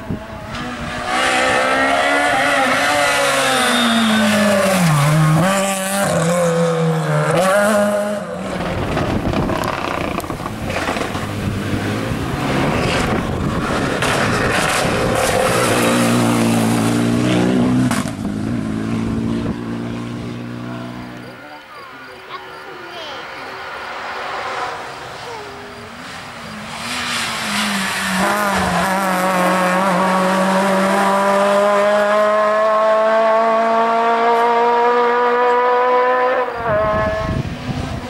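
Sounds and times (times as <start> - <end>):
rally car engines revving: 0.0 - 38.0.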